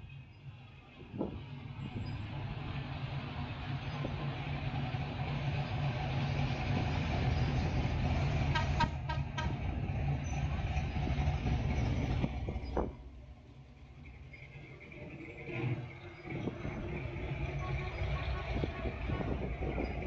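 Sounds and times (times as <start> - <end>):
cars driving past: 0.0 - 20.0
car horn short beeps: 8.5 - 9.6.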